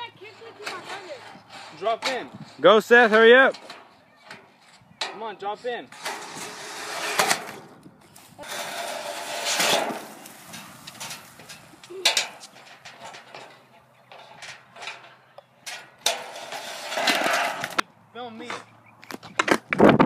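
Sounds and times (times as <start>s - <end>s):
skateboard wheels rolling on pavement: 5.8s - 20.0s.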